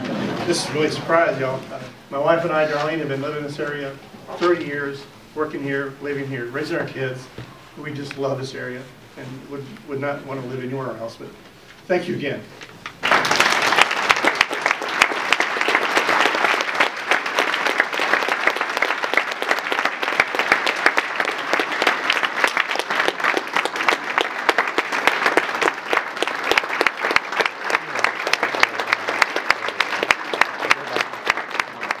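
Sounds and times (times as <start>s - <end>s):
audience applauding: 13.0s - 32.0s.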